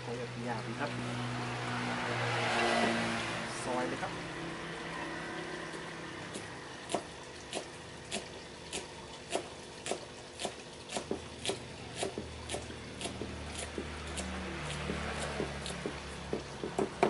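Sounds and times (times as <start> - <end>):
knife chopping on wooden block: 6.9 - 17.0.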